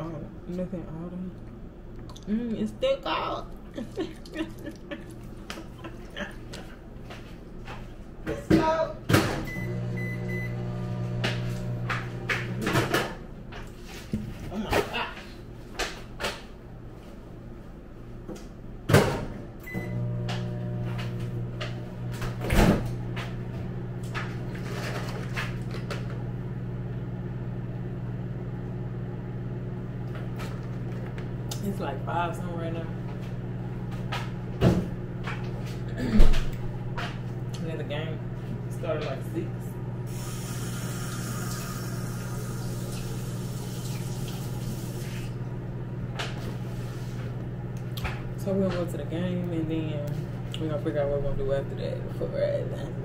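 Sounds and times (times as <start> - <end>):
microwave oven humming: 0.0 - 53.0
running water: 40.1 - 45.3.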